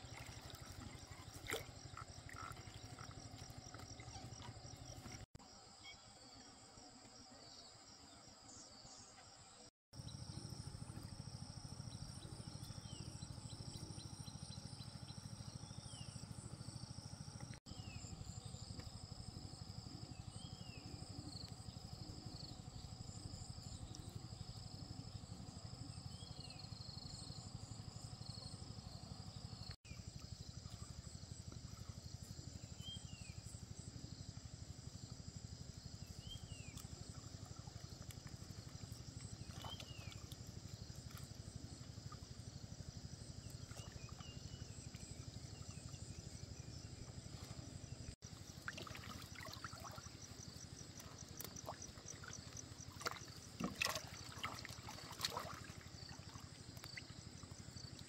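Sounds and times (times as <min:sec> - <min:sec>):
low steady rumble: 0:10.0 - 0:58.0.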